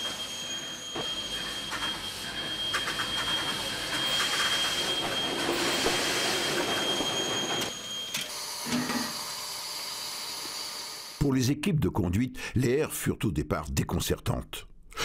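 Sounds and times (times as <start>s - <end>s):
steam locomotive clatter: 1.6s - 7.7s.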